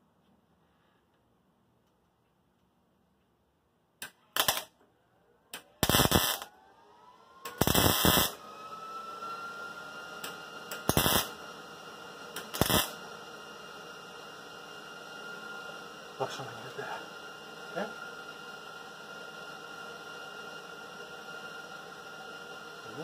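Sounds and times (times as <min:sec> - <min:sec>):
welding arc crackle: 0:04.4 - 0:04.7, 0:05.8 - 0:06.5, 0:07.5 - 0:08.4, 0:10.7 - 0:11.4, 0:12.4 - 0:13.0.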